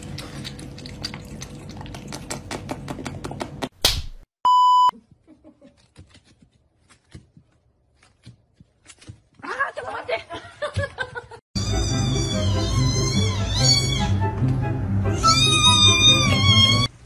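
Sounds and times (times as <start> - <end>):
cat lapping water: 0.0 - 2.5.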